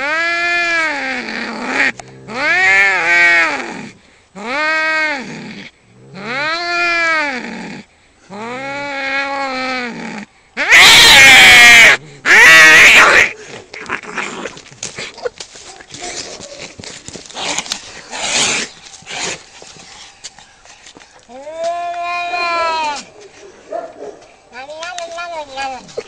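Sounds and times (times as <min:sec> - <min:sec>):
cats yowling: 0:08.4 - 0:14.3, 0:21.3 - 0:23.3
cats screeching harshly: 0:10.6 - 0:14.5.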